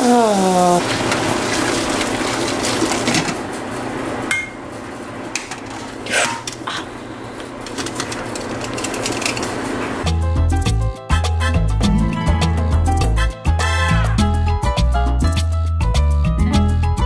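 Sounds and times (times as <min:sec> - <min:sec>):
water pouring into a colander: 0:00.8 - 0:03.3.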